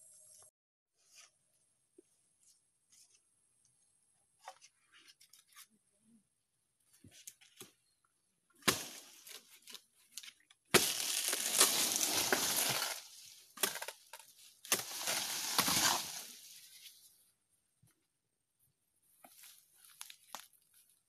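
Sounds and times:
dry palm leaves crackling and rustling: 0:08.7 - 0:17.0.

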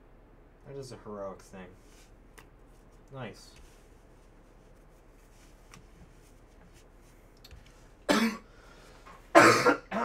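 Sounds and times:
person coughing: 0:08.1 - 0:08.5, 0:09.3 - 0:10.0.

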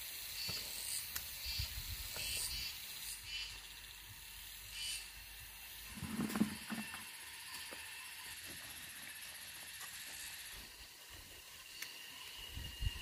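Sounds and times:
insects chirping: 0:00.0 - 0:13.0
hoe digging into soil: 0:05.9 - 0:07.0.

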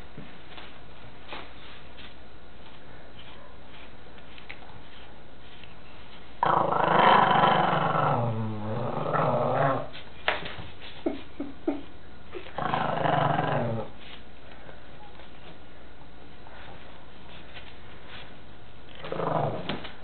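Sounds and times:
dog growling: 0:06.4 - 0:09.9, 0:12.4 - 0:14.0, 0:19.0 - 0:19.8.

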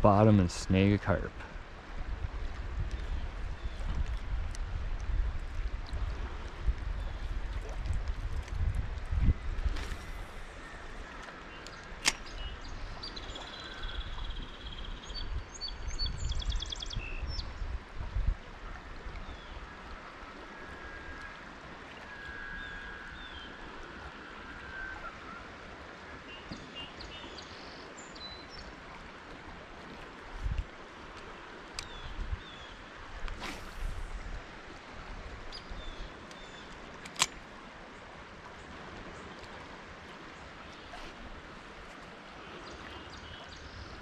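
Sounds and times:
wind rumbling on microphone: 0:00.0 - 0:25.2, 0:29.8 - 0:30.9, 0:31.8 - 0:36.5
songbirds singing: 0:11.4 - 0:17.6, 0:26.2 - 0:28.8, 0:31.8 - 0:32.8, 0:35.5 - 0:36.8, 0:42.5 - 0:44.0
sharp click: 0:11.6 - 0:12.4
outdoor hiss: 0:33.3 - 0:34.7.

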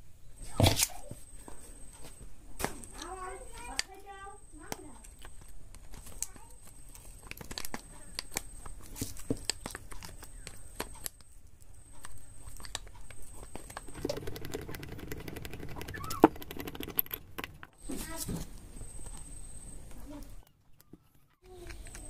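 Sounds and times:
spanner clicking on bolts: 0:13.7 - 0:17.7.

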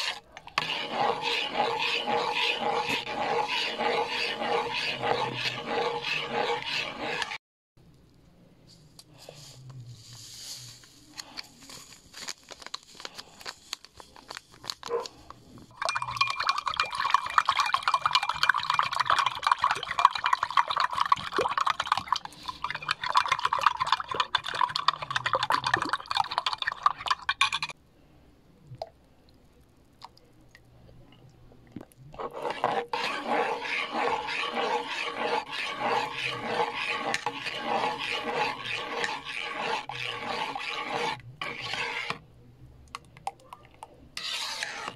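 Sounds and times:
metal spoon scraping a metal pot: 0:00.0 - 0:07.4, 0:32.2 - 0:42.2, 0:44.2 - 0:44.9
spoon stirring in a glass: 0:00.0 - 0:07.4, 0:15.7 - 0:27.8, 0:32.2 - 0:42.2.

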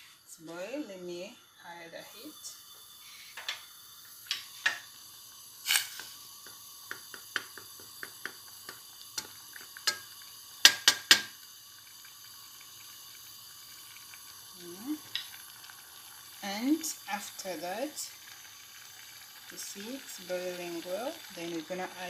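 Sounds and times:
faint steady hiss: 0:00.0 - 0:22.0
wooden spoon knocking on a steel pot: 0:06.9 - 0:08.8, 0:10.6 - 0:11.3.

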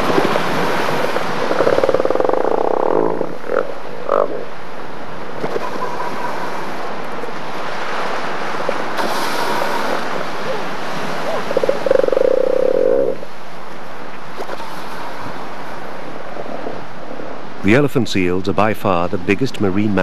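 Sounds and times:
surf: 0:00.0 - 0:20.0
wind: 0:00.0 - 0:20.0
elephant seal rasping call: 0:01.0 - 0:04.5, 0:09.4 - 0:13.3.

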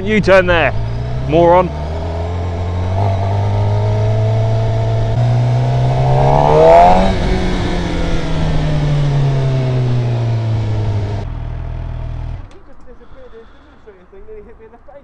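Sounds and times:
motorcycle engine revving: 0:00.8 - 0:12.4.

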